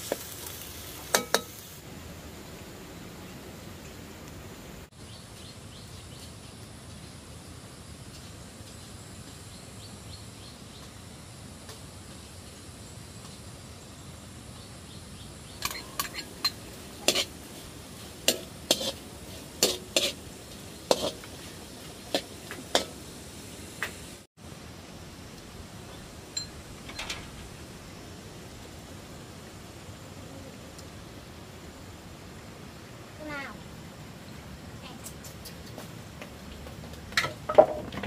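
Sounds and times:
food sizzling in a pan: 0.0 - 1.9, 15.6 - 24.3
utensil clinking against pan: 15.6 - 17.3.

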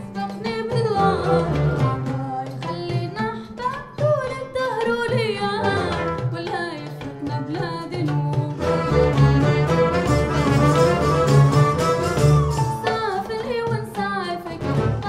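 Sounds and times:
hand percussion: 0.0 - 15.0
oud playing: 0.8 - 2.8, 5.6 - 7.2, 8.5 - 12.9, 14.6 - 15.0.

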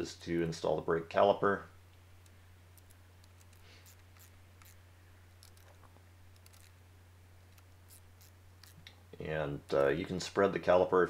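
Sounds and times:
steady low hum: 0.0 - 11.0
hand ratchet clicking: 2.8 - 4.8, 6.4 - 6.7, 7.5 - 8.9.

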